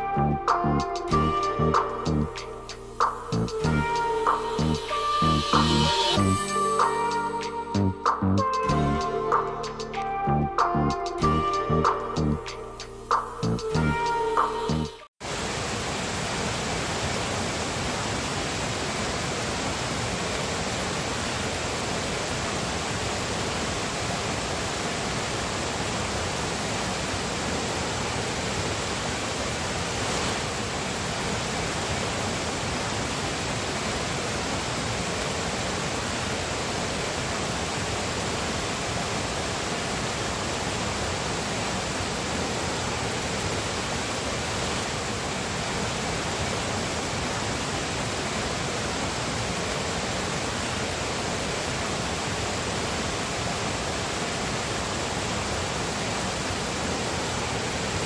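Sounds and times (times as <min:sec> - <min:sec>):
stream rushing over stones: 0:15.2 - 0:58.0.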